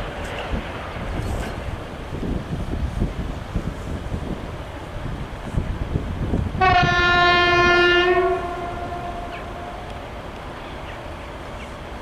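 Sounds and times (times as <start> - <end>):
wind rumbling on microphone: 0.0 - 12.0
locomotive horn blast: 6.6 - 9.9.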